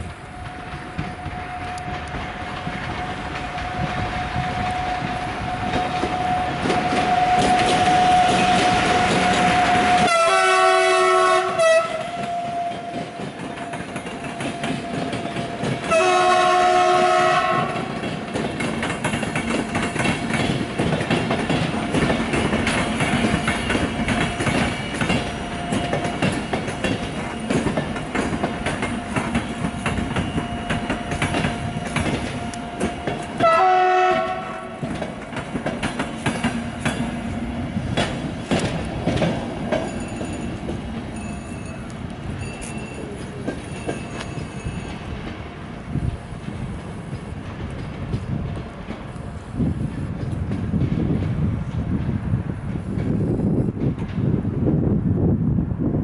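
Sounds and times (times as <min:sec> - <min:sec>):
train wheels clacking over rail joints: 0:00.0 - 0:54.4
locomotive horn blasts: 0:05.5 - 0:13.0, 0:15.8 - 0:17.9, 0:32.4 - 0:34.9.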